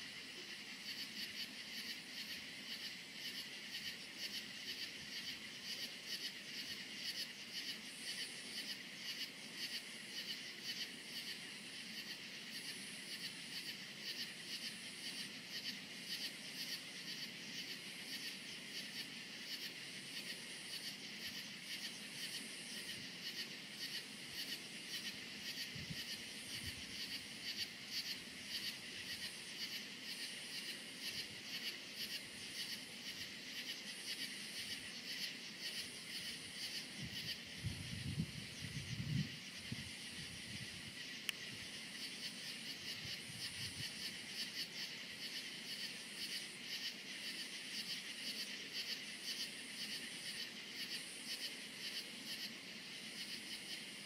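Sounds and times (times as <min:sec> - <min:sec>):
crickets chirping: 0:00.0 - 0:54.0
high insect trill: 0:00.0 - 0:54.0.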